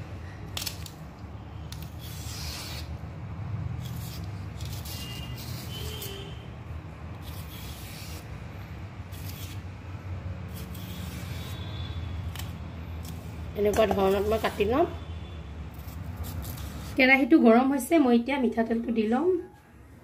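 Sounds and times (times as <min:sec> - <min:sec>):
fingers peeling plant stem: 0:03.8 - 0:06.2, 0:12.2 - 0:14.8.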